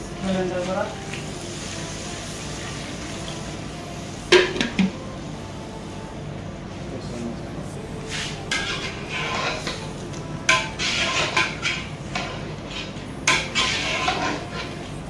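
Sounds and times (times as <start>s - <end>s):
pots and utensils clattering: 4.3s - 5.0s, 8.2s - 15.0s.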